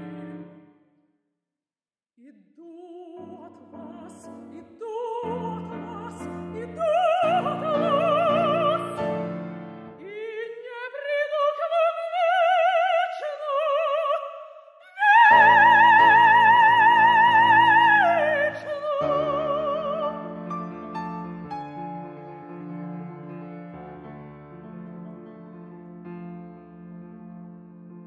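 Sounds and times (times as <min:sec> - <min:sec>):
woman singing opera: 0:00.0 - 0:00.7, 0:02.2 - 0:09.4, 0:10.0 - 0:20.5
piano: 0:00.0 - 0:00.9, 0:02.8 - 0:28.0.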